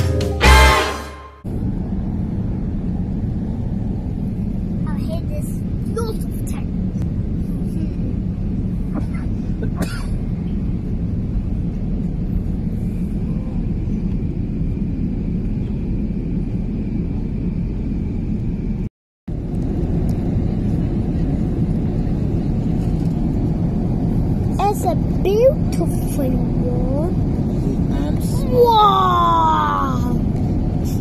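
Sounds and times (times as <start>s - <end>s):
airliner cabin engine rumble: 1.5s - 31.0s.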